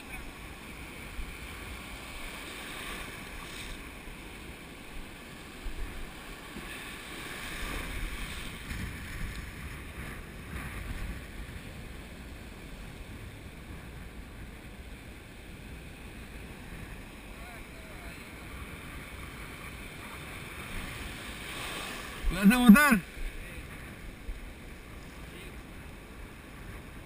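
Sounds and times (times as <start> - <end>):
ocean surf washing: 0.0 - 27.0
wind buffeting microphone: 5.4 - 22.4.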